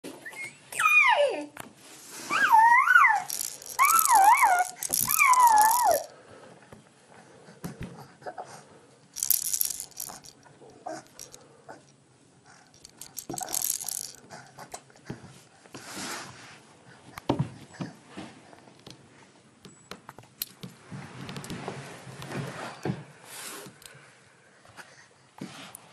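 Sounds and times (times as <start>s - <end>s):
toy rattle shaking: 3.1s - 6.1s, 9.2s - 11.4s, 12.7s - 14.4s.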